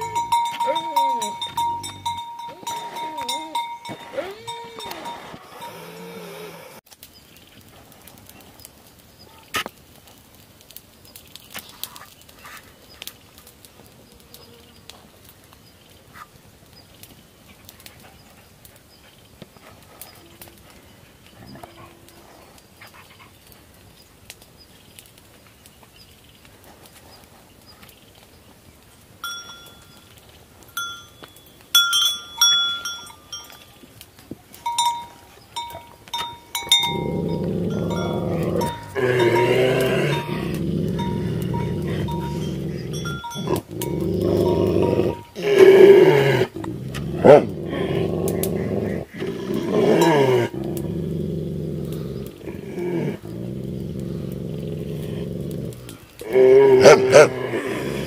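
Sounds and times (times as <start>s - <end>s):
lower-pitched bell ringing: 0.0s - 6.0s, 29.2s - 30.0s, 30.8s - 33.8s, 34.6s - 45.4s
metal neck bells clinking: 0.0s - 6.1s, 29.2s - 34.0s, 34.6s - 45.5s
dog growling deeply: 0.0s - 6.8s, 35.6s - 58.0s.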